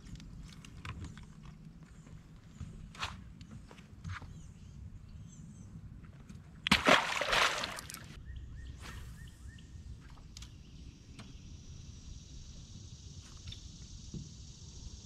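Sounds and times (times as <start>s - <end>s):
fish splashing into river: 6.7s - 8.2s
high insect chorus: 8.8s - 15.0s.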